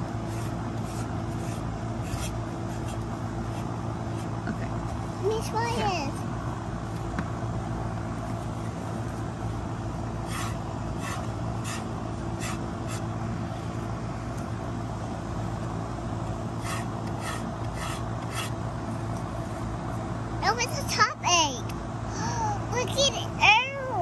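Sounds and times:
steady low hum: 0.0 - 24.0
paintbrush scraping wood: 0.2 - 4.3, 10.2 - 13.1, 16.6 - 18.6.

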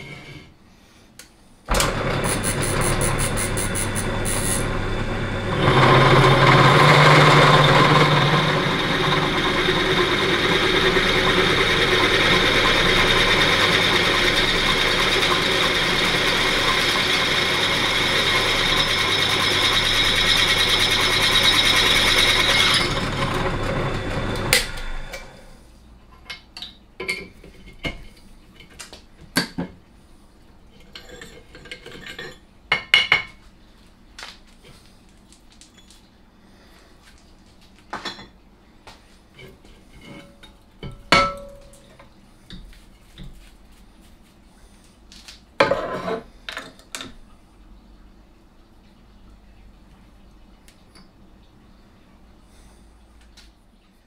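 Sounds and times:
drill bit cutting into metal: 1.7 - 5.0, 5.6 - 23.4
pillar drill motor humming: 1.7 - 25.4.

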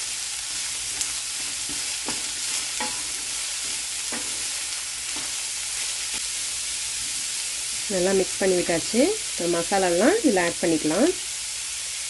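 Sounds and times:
spatula scraping and knocking pan: 0.0 - 6.3
vegetables sizzling in hot oil: 0.0 - 12.0.

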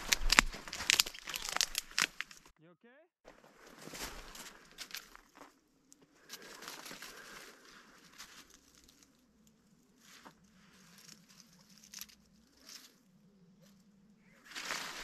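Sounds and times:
light ticks of twigs: 0.0 - 2.5, 3.6 - 15.0
rustles in dry leaf litter: 14.4 - 15.0.

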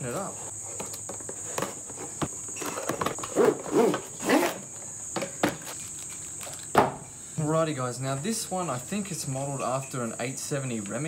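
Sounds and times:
packaging scraping and rustling: 0.2 - 4.7, 5.5 - 6.7.

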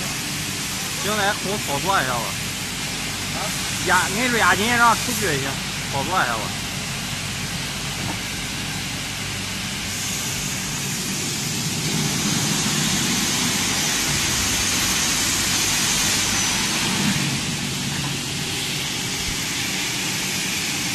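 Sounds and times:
high saw whine: 0.0 - 6.7
cutting saw running: 9.8 - 20.9.

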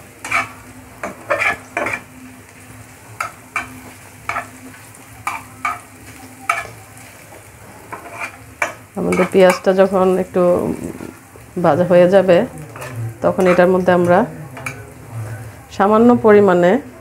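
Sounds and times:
onions sizzling in a pan: 0.0 - 17.0
metal spatula scraping pan: 0.2 - 2.2, 3.2 - 4.6, 5.2 - 6.8, 7.7 - 9.8, 12.6 - 15.6.

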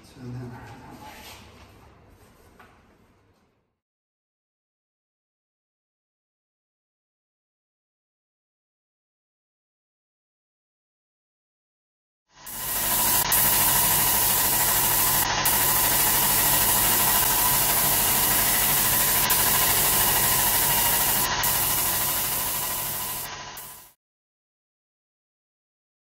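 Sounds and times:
paint spray gun hissing: 12.4 - 24.0
pump humming and whining: 12.4 - 24.0.

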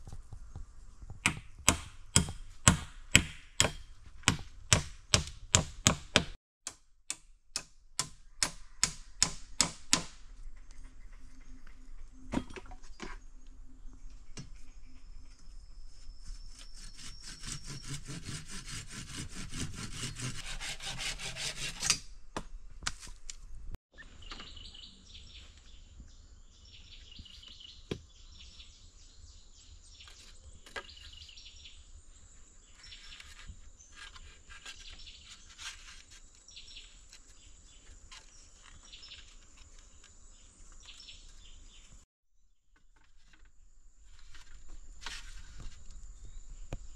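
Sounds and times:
hand tool working wood: 16.5 - 22.0.

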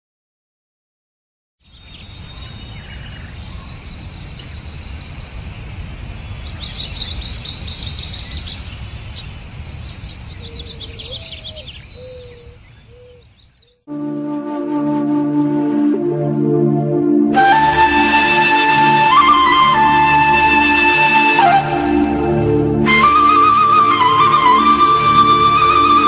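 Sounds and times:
birds chirping and trilling: 1.6 - 13.9.

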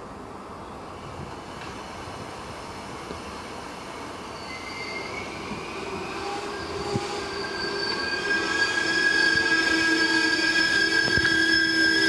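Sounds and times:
train wheels rumbling on rails: 0.9 - 12.0
high squealing brakes: 2.9 - 12.0.

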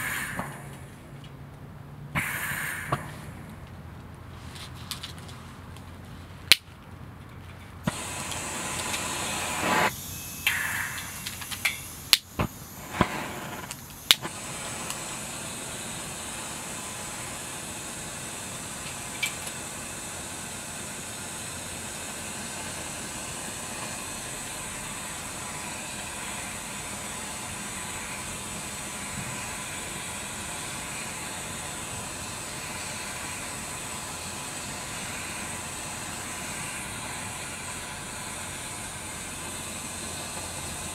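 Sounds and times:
burner flaring: 0.0 - 1.3, 2.1 - 4.2, 7.8 - 40.9
burner steady hiss: 0.0 - 6.6, 7.8 - 40.9
burner igniter clicks: 7.9 - 17.3, 18.5 - 19.7.

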